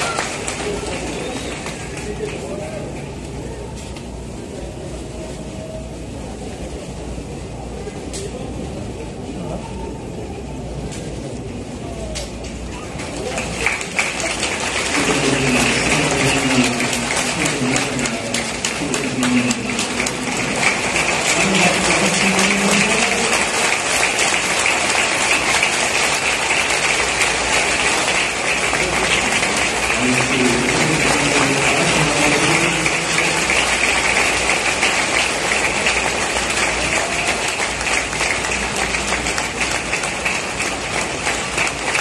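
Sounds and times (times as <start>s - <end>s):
stadium crowd applauding: 0.0s - 3.6s, 12.2s - 42.0s
faint voices: 0.0s - 42.0s.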